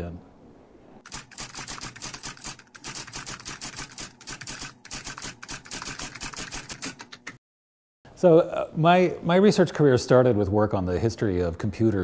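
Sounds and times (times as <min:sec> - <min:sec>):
typewriter key clacks: 0:01.1 - 0:07.4.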